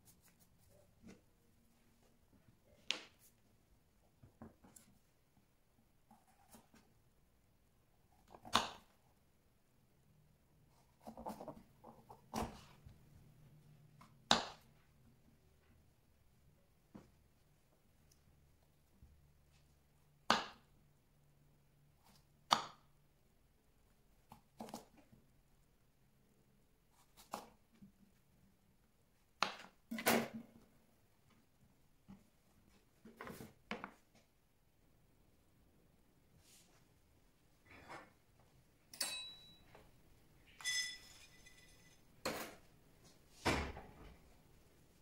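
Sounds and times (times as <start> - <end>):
metal cookware clanking: 39.0 - 39.6, 40.5 - 42.6.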